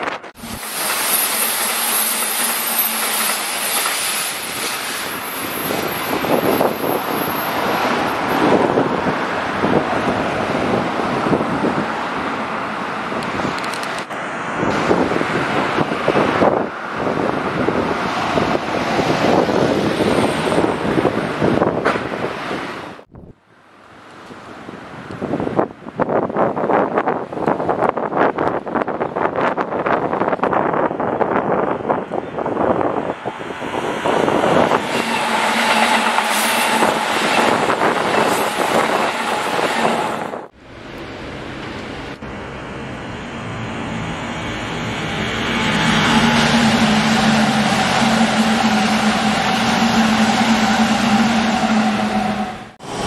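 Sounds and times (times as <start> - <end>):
train wheels rumbling on rails: 0.0 - 12.2, 26.6 - 53.0
electric train running: 0.4 - 7.6, 42.5 - 53.0
wind buffeting microphone: 4.5 - 12.4, 14.5 - 23.4, 24.6 - 40.6.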